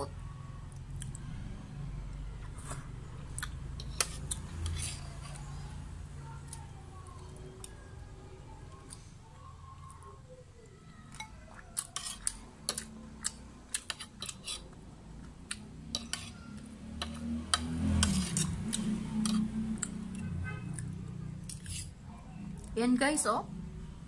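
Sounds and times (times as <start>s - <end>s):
cutlery clinking on ceramic: 15.9s - 16.4s.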